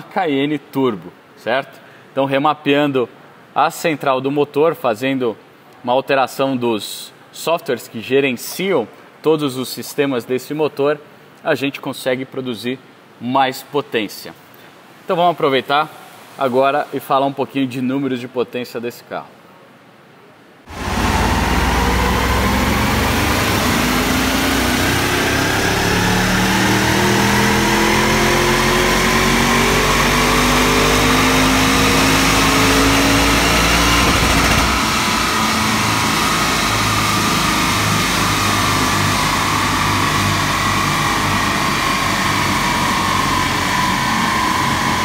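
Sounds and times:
car engine revving under load: 0:20.7 - 0:45.0
engine and rollers running down: 0:20.7 - 0:45.0.

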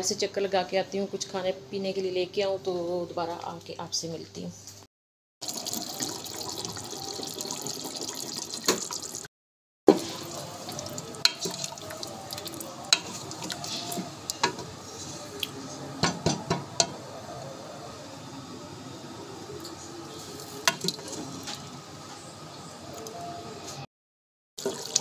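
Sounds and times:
pot bubbling with hiss: 0:05.4 - 0:09.3, 0:09.9 - 0:15.8, 0:24.6 - 0:25.0.

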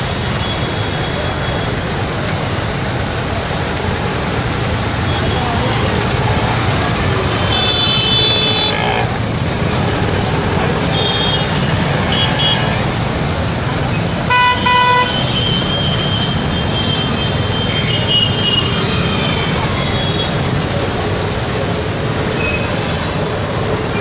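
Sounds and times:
road traffic: 0:00.0 - 0:24.0
vehicle horns honking: 0:07.3 - 0:09.1, 0:10.8 - 0:12.8, 0:14.3 - 0:18.8.

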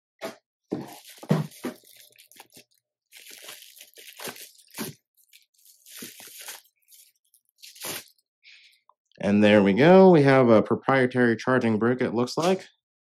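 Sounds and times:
plastic wrapping crinkling: 0:00.7 - 0:08.3.

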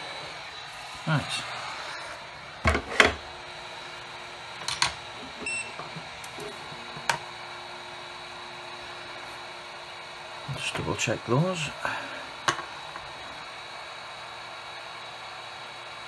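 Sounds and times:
faint hum: 0:00.0 - 0:13.6
tools knocking on workbench: 0:02.6 - 0:03.2.

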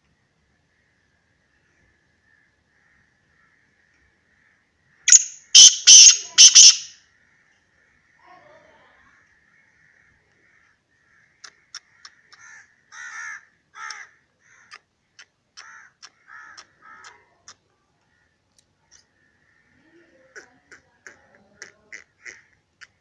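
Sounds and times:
bird calling with clicks: 0:11.4 - 0:12.5, 0:13.8 - 0:19.1.

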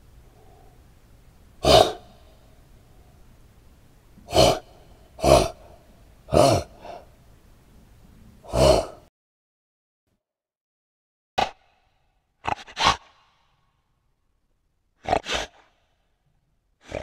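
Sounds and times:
animal snorting: 0:01.6 - 0:02.4, 0:04.2 - 0:07.1, 0:08.4 - 0:09.0, 0:12.4 - 0:13.4, 0:15.0 - 0:15.9, 0:16.8 - 0:17.0.

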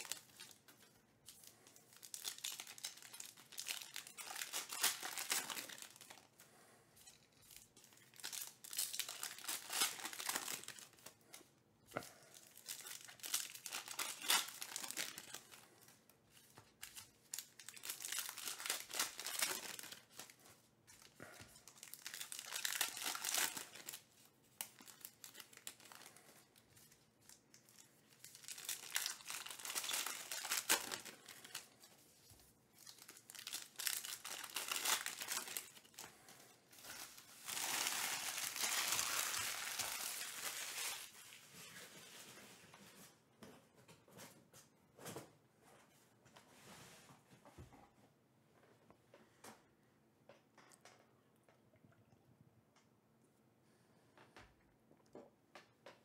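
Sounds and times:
foil wrappers tearing and crinkling: 0:00.0 - 0:06.3, 0:07.0 - 0:11.2, 0:12.3 - 0:15.8, 0:16.4 - 0:20.4, 0:21.0 - 0:26.3, 0:27.3 - 0:31.9, 0:32.8 - 0:41.7.

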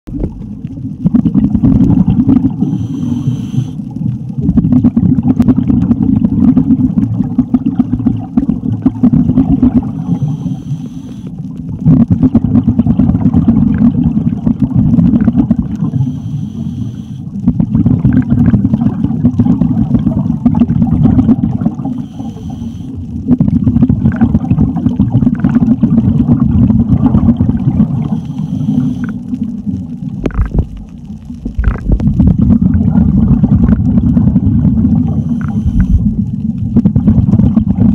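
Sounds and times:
scuba diver exhaling bubbles: 0:00.1 - 0:37.9
regulator inhale hiss: 0:02.5 - 0:03.9, 0:09.9 - 0:11.5, 0:15.8 - 0:17.4, 0:21.8 - 0:23.0, 0:28.0 - 0:29.3, 0:35.0 - 0:36.1.

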